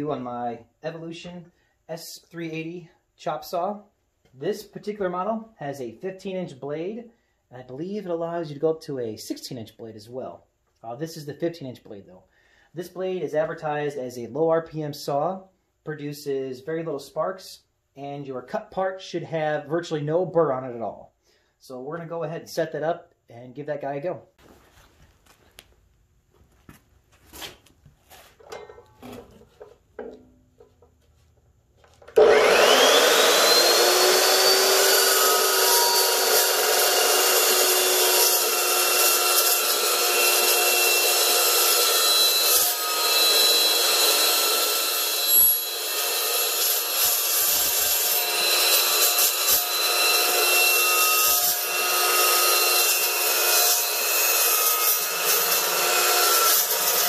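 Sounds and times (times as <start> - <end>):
chop saw cutting metal: 32.1 - 57.0.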